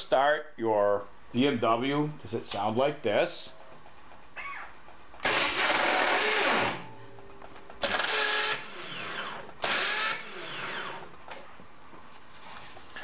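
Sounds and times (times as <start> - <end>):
motorcycle starter grinding whir: 5.2 - 6.9, 7.8 - 11.1.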